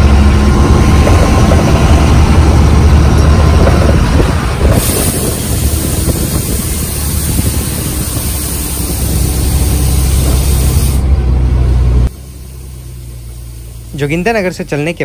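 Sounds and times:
bus engine rumble: 0:00.0 - 0:15.0
hiss: 0:04.6 - 0:11.0, 0:12.1 - 0:14.6.

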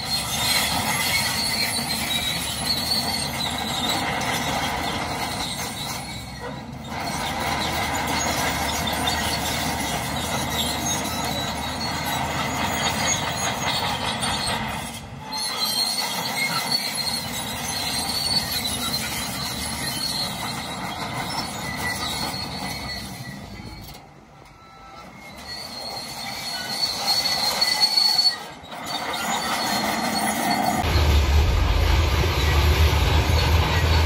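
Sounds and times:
steel tracks squealing and clanking: 0:00.0 - 0:34.0
diesel engine running: 0:30.8 - 0:34.0.

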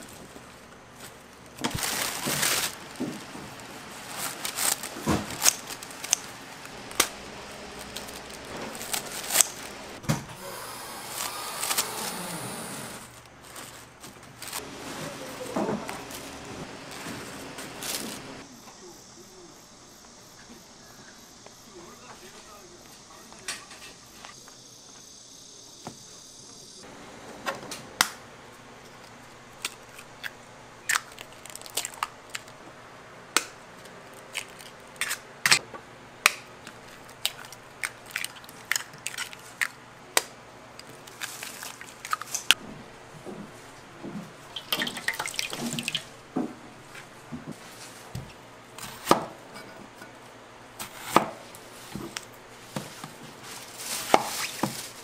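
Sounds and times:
water dripping and splashing: 0:44.5 - 0:46.2.

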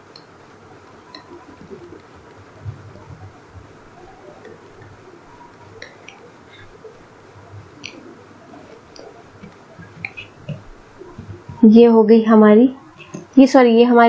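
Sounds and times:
low background hiss: 0:00.0 - 0:14.0.

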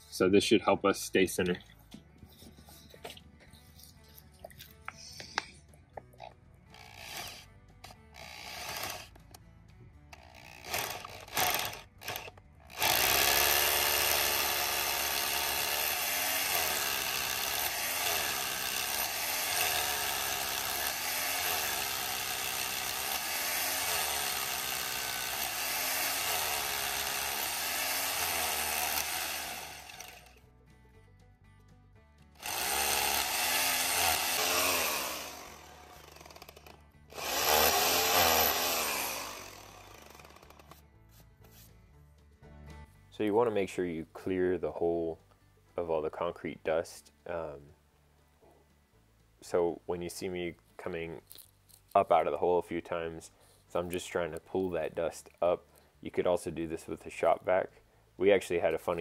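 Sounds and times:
hammer drill boring into concrete: 0:06.7 - 0:09.3, 0:10.1 - 0:30.4, 0:32.4 - 0:40.8.

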